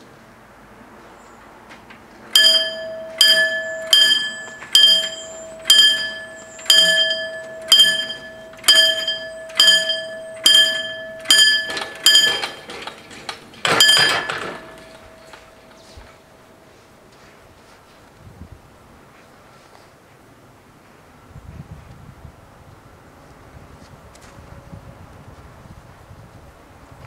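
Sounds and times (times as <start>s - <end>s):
level crossing warning bell: 2.3s - 17.1s
rough clash of barriers: 2.4s - 15.9s.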